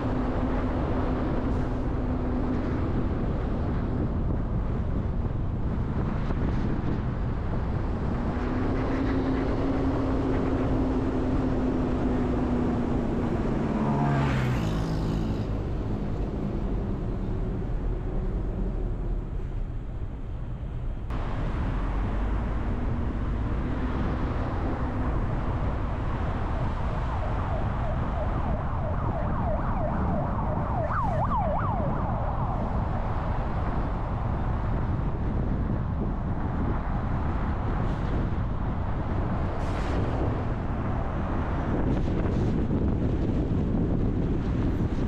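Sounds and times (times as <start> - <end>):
car road and engine noise: 0.0 - 45.0
distant siren wailing: 22.2 - 33.5.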